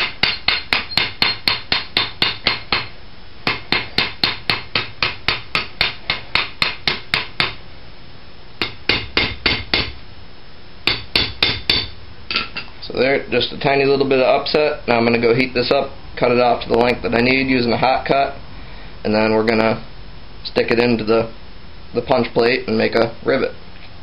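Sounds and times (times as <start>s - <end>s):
hammer striking steel bar: 0.0s - 2.9s, 3.5s - 7.6s, 8.6s - 10.0s, 10.9s - 12.7s.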